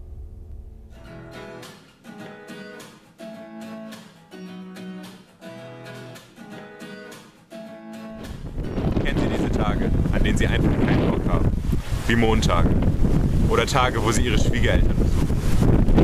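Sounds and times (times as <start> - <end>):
low ringing tone: 0.0 - 1.4
acoustic guitar chords: 0.0 - 12.0.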